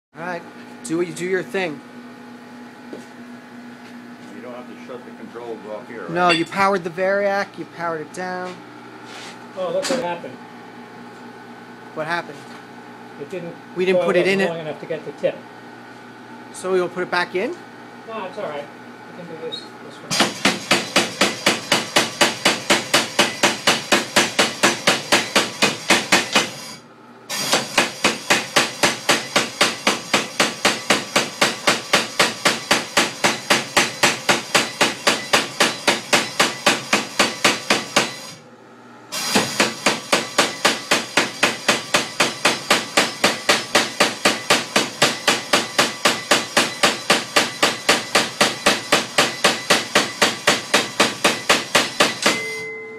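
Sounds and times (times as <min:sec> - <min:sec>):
forging hammer striking hot steel: 0:06.2 - 0:06.6, 0:39.5 - 0:52.6.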